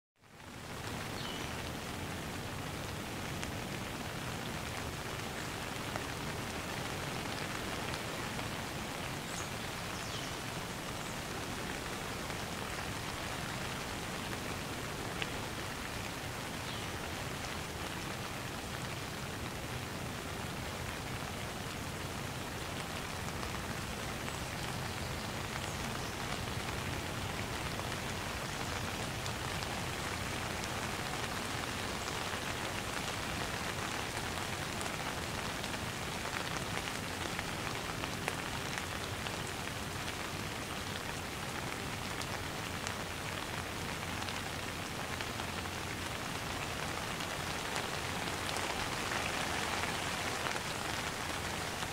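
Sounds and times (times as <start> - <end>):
light rain falling: 0.2 - 51.9.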